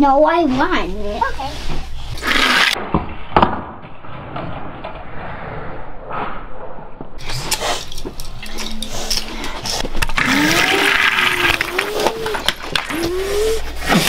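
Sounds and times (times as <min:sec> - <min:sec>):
toy car rolling on cardboard: 0:10.0 - 0:14.0.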